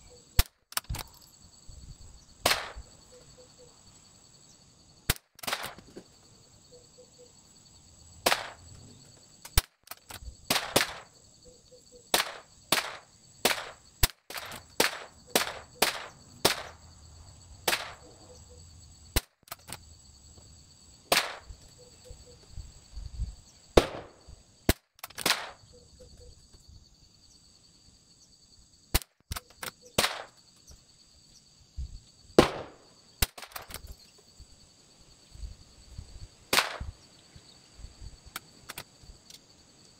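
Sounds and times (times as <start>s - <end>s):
rifle shots cracking: 23.8s - 24.2s, 32.4s - 33.7s.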